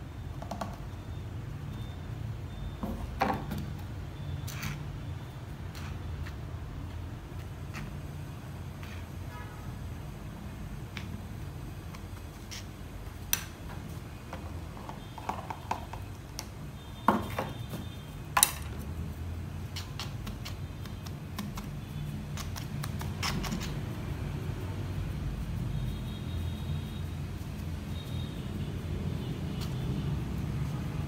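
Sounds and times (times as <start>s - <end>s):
stick tapping and scraping soil: 5.7s - 8.1s, 11.8s - 13.8s, 19.7s - 23.9s.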